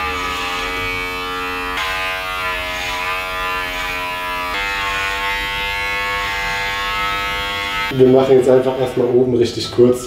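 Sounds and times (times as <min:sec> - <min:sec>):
electric hair clippers buzzing: 0:00.0 - 0:09.3.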